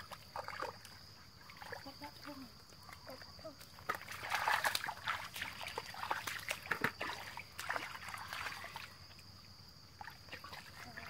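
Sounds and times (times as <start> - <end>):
hands splashing in muddy water: 3.0 - 9.0.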